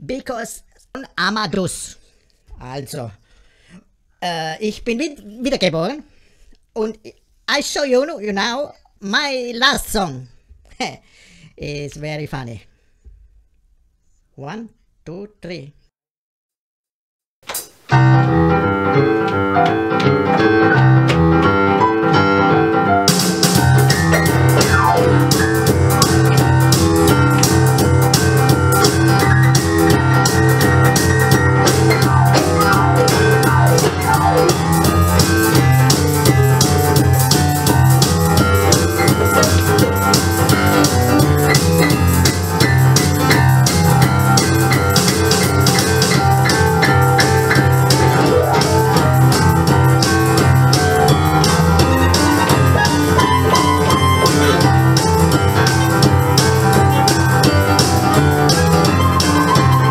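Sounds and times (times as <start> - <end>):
electronic keyboard song: 17.9 - 59.9
drum beat: 23.1 - 59.9.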